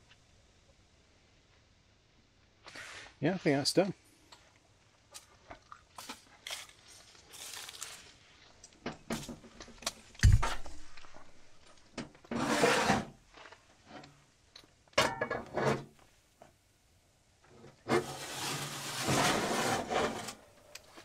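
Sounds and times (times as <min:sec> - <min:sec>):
sharp knocks: 0:10.2 - 0:11.2.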